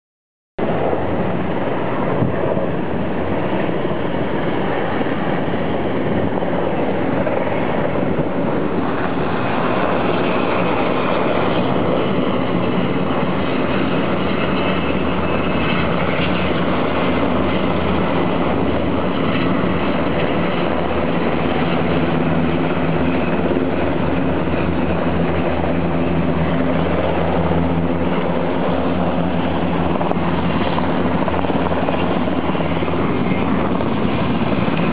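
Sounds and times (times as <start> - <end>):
helicopter rotors and engines droning: 0.6 - 34.9.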